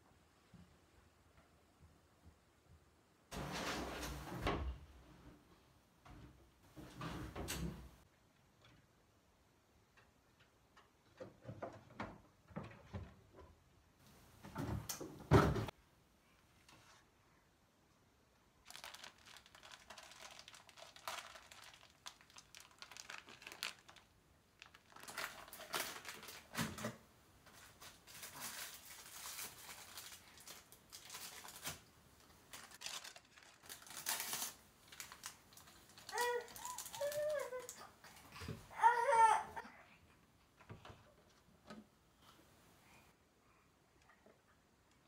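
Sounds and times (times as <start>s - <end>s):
packaging rustling and crinkling: 18.6s - 37.8s.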